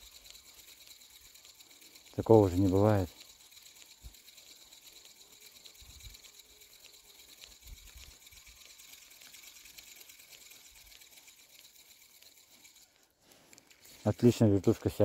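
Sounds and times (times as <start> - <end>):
fishing reel whirring: 0.0 - 15.0.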